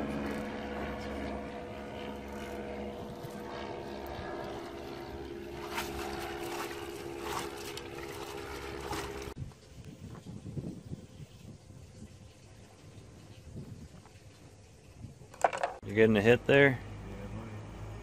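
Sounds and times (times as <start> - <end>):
boat engine running: 0.0 - 9.4
landing net splashing in water: 4.6 - 9.4.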